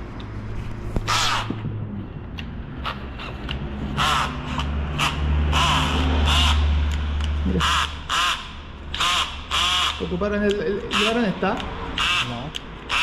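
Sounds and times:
bird cawing: 1.1s - 1.5s, 3.9s - 6.8s, 7.5s - 10.1s, 12.0s - 13.0s.

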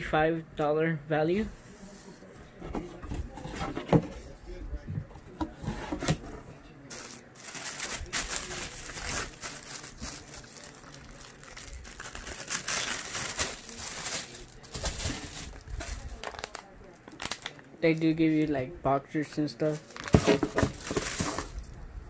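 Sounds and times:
paper and plastic crinkling: 5.3s - 18.2s, 19.3s - 21.8s.

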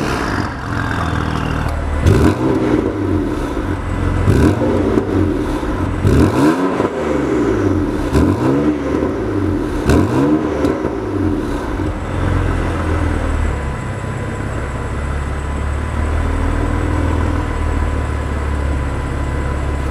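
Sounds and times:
exhaust cracks: 0.0s - 12.3s
car engine revving: 0.0s - 13.6s
car engine idling: 0.0s - 19.9s.

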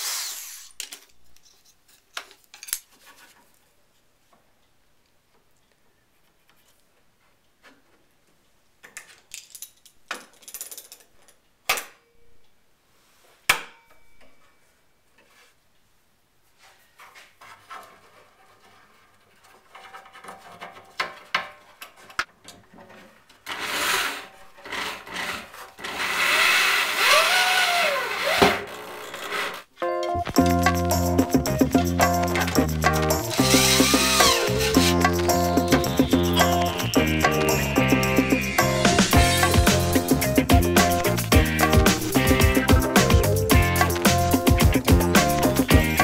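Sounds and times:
electric drill driving screws: 0.0s - 0.8s, 23.4s - 29.7s, 33.2s - 37.5s.

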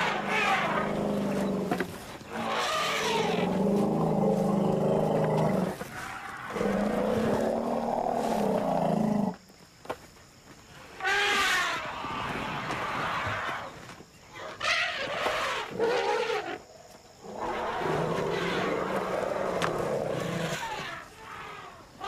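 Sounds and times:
elephants rumbling and roaring: 0.0s - 9.4s, 17.2s - 21.8s.

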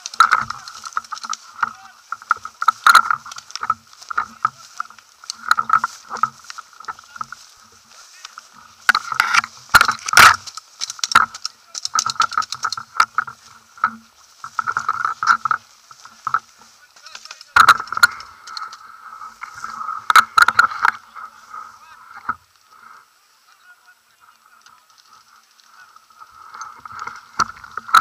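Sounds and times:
grass rustling against camera: 0.0s - 28.0s.

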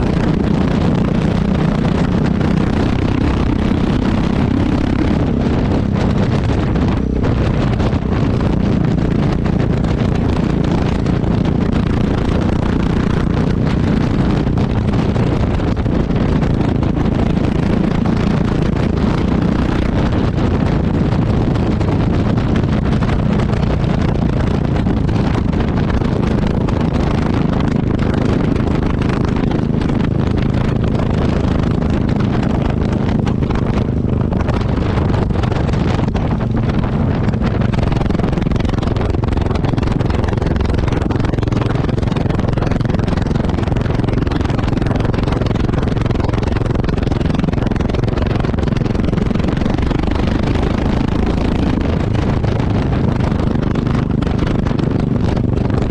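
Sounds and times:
motorcycle exhaust: 0.0s - 55.9s
wind on microphone: 0.0s - 55.9s.

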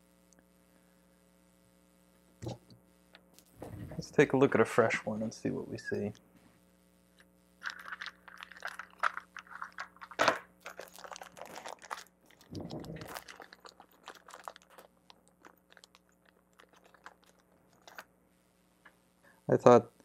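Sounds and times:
plastic bag crinkling: 7.6s - 18.1s.

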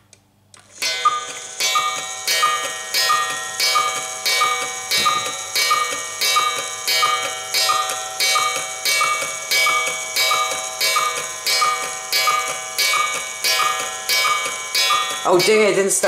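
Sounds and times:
cuckoo clock calling: 0.7s - 16.0s.

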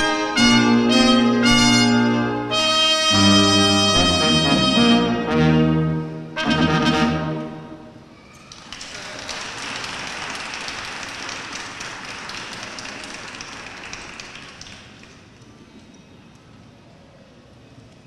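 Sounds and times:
brass ensemble chord: 0.0s - 8.0s
audience clapping: 8.4s - 15.4s.

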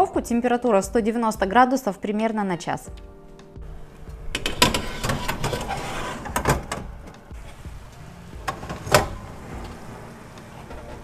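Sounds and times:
baking tray scraping on oven rack: 4.3s - 7.7s, 8.4s - 11.0s
metal tray clanks: 4.4s - 7.6s.

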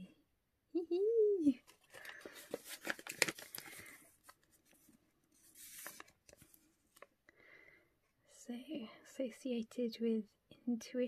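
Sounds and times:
paper envelope rustling: 1.6s - 7.1s.

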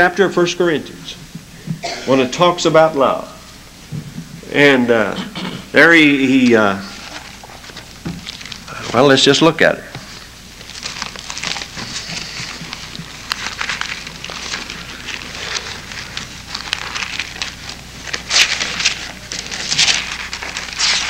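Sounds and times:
paper pages rustling: 5.8s - 21.0s.

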